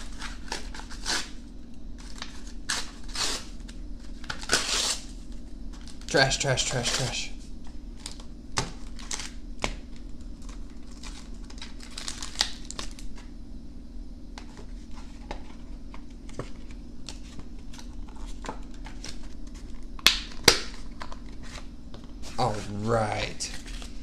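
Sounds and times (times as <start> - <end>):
cardboard tearing: 4.2 - 5.1
plastic packaging crinkling: 10.3 - 13.2.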